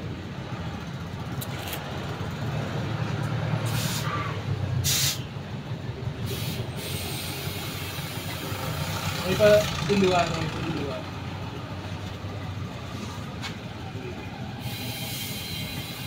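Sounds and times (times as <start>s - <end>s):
street traffic rumble: 0.0s - 16.0s
compressed air hisses: 3.6s - 4.2s, 4.8s - 5.3s, 6.2s - 8.8s, 14.6s - 16.0s.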